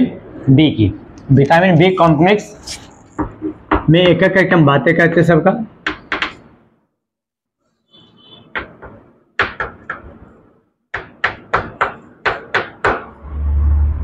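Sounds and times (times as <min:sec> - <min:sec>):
chalk tapping and scraping on blackboard: 0:02.5 - 0:04.2, 0:05.8 - 0:06.6, 0:08.5 - 0:13.1.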